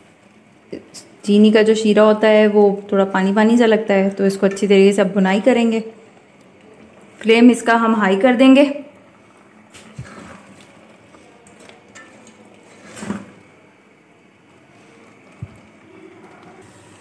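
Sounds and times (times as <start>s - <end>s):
spatula scraping a pot: 9.7s - 13.4s.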